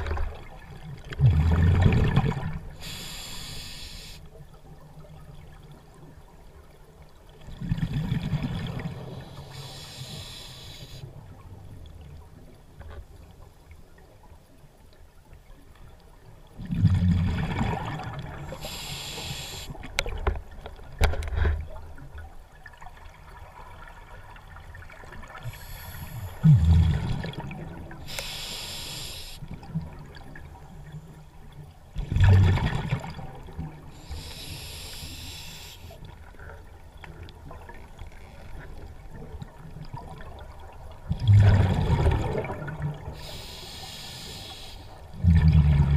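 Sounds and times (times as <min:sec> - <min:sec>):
exhaled bubbles rumbling: 0:00.0 - 0:02.8, 0:07.4 - 0:09.2, 0:16.6 - 0:18.5, 0:24.8 - 0:28.0, 0:32.0 - 0:33.8, 0:39.0 - 0:43.2, 0:45.1 - 0:45.9
regulator inhale hiss: 0:02.8 - 0:04.3, 0:09.1 - 0:11.1, 0:18.5 - 0:19.9, 0:25.4 - 0:26.5, 0:28.0 - 0:29.5, 0:34.0 - 0:36.0, 0:43.1 - 0:45.1.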